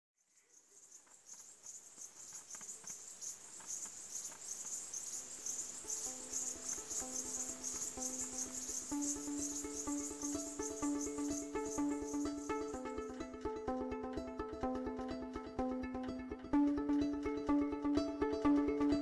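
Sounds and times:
crickets chirping: 0.2s - 13.2s
soft music with low melody: 5.0s - 19.0s.

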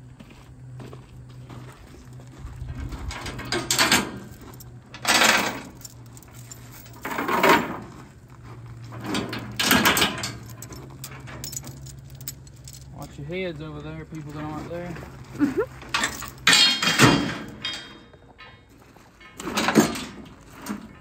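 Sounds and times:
steel chains rattling and clanking: 2.6s - 8.0s, 8.8s - 13.2s, 15.6s - 21.0s.

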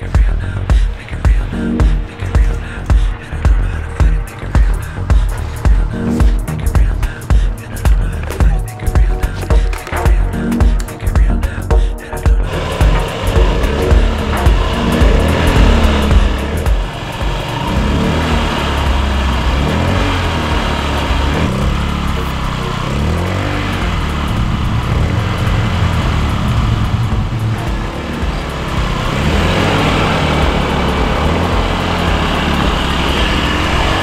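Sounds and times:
background music: 0.0s - 34.0s
small motorbike engine revving: 12.4s - 34.0s.

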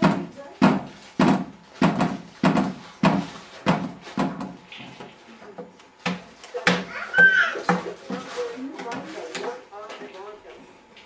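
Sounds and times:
toddler banging on a table: 0.0s - 4.6s, 6.1s - 9.5s.

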